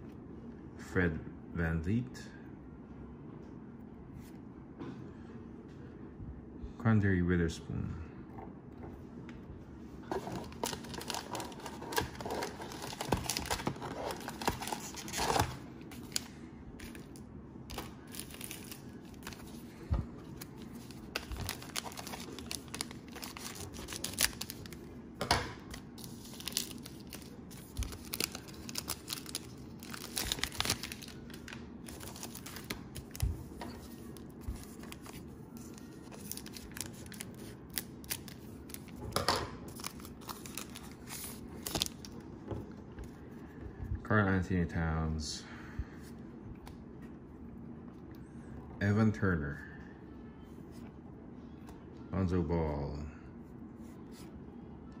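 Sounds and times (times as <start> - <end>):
cellophane wrapper crinkling: 10.1 - 24.9, 25.7 - 39.0, 39.7 - 42.2.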